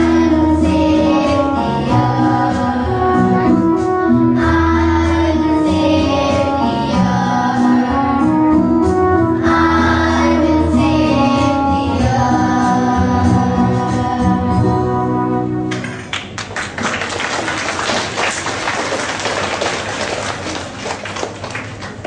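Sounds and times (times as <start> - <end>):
children singing: 0.0 - 8.6, 9.4 - 14.7
instrumental accompaniment with bass: 0.0 - 16.1.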